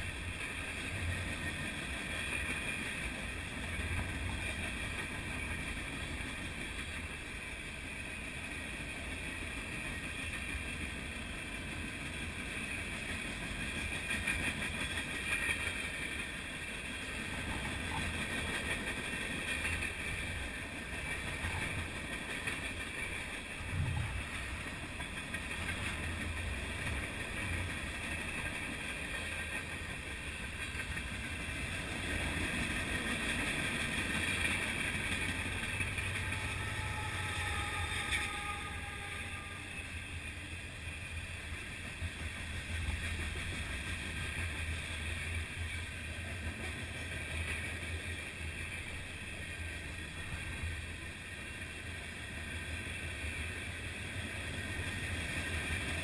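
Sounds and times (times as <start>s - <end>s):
diesel locomotive passing: 0.0s - 56.0s
freight train wheels clattering: 0.0s - 56.0s.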